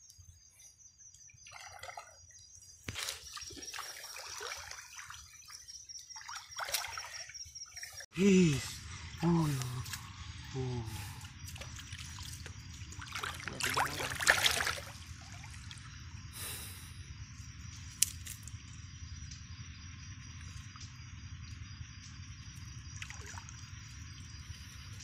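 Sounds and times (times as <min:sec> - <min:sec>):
water dripping and trickling: 0:01.1 - 0:08.1, 0:11.0 - 0:15.9
water splashing and sloshing: 0:01.1 - 0:08.2, 0:09.5 - 0:16.0, 0:22.8 - 0:24.7.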